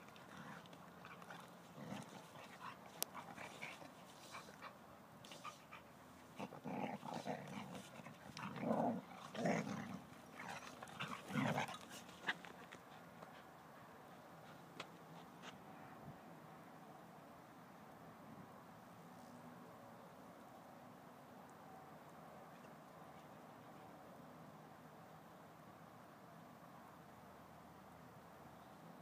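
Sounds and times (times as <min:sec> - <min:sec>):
dogs play-fighting: 0:00.0 - 0:15.7
dog growls: 0:00.2 - 0:04.7, 0:06.4 - 0:12.4.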